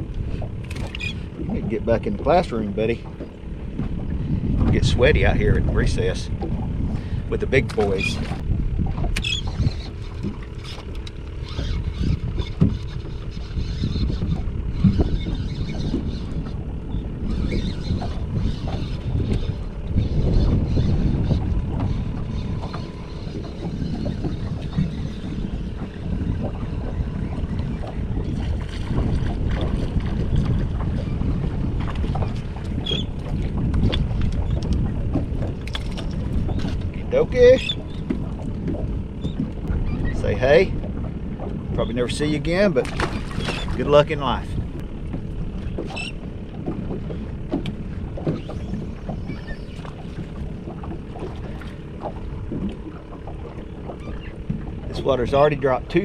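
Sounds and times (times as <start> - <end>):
light clicks and splashes: 0.0 - 4.8, 6.0 - 13.3, 22.6 - 56.0
waves slapping boat hull: 0.0 - 56.0
wind buffeting microphone: 0.0 - 56.0.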